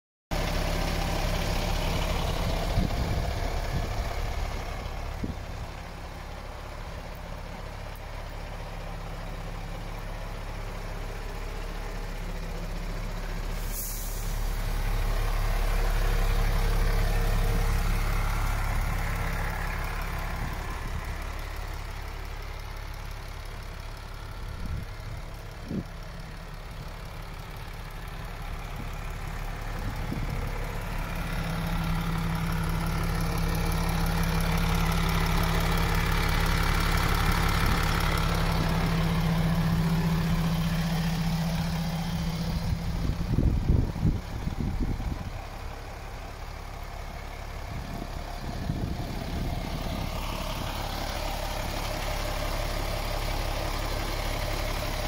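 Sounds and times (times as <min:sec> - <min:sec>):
diesel truck engine idling: 0:00.3 - 0:55.0
brief high hiss: 0:13.6 - 0:14.6.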